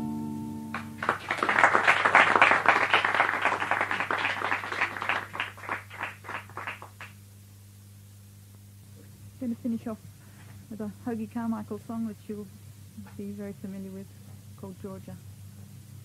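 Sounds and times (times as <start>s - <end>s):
acoustic guitar chord ringing: 0.0s - 1.2s
audience applauding: 0.7s - 7.2s.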